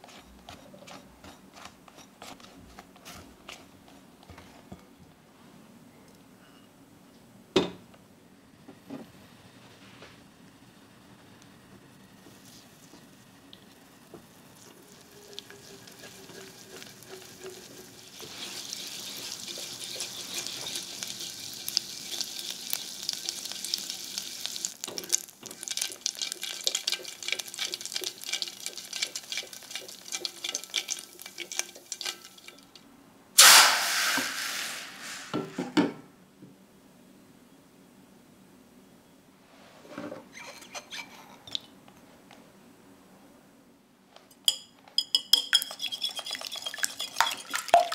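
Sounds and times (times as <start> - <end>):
spatula stirring in saucepan: 0.0 - 4.8, 14.6 - 32.8, 45.0 - 47.9
butter sizzling and crackling: 12.2 - 32.8, 45.5 - 47.9
hot pan hissing: 17.8 - 24.8, 33.4 - 35.6.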